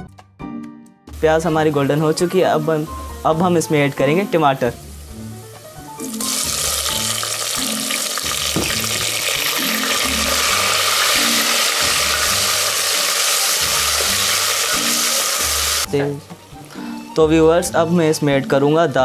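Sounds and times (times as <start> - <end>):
tomatoes sizzling in hot oil: 1.6 - 15.9.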